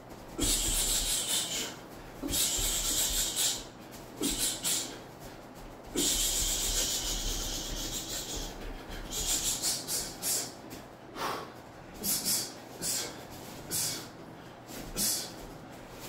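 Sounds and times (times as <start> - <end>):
man hissing exhales through teeth: 0.4 - 3.6, 4.2 - 5.0, 6.0 - 10.5.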